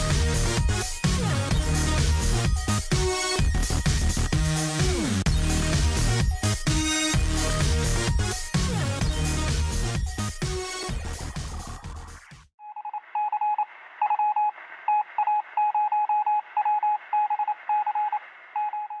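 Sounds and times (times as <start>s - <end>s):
electronic music: 0.0s - 12.4s
morse code beeps: 12.6s - 19.0s.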